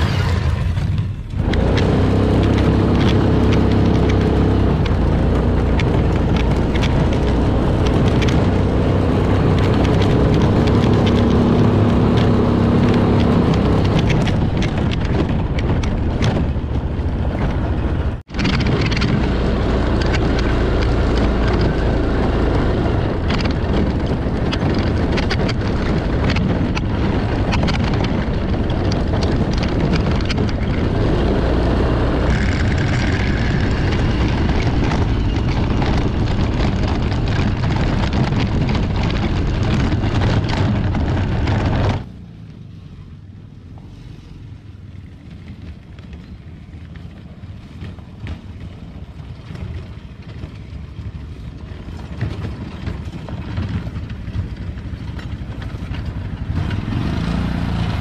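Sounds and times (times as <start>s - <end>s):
knocks and rattles: 0.0s - 42.1s
wind on microphone: 0.0s - 42.1s
atv engine running: 0.0s - 58.0s
distant atv approaching: 0.0s - 58.0s.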